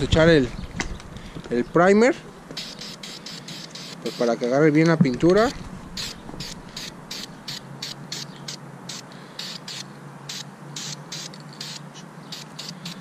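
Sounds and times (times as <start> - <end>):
aerosol spray bursts: 2.6 - 4.3, 6.0 - 13.0.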